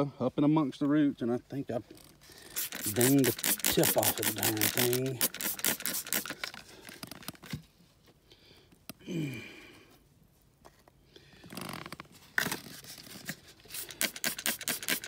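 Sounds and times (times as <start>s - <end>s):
spray bottle squirting water: 2.4s - 6.6s, 13.6s - 15.0s.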